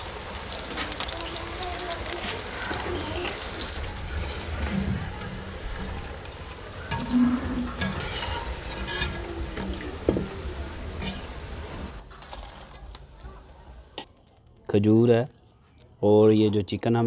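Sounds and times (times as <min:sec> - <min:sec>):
fritters sizzling in oil: 0:00.0 - 0:12.0.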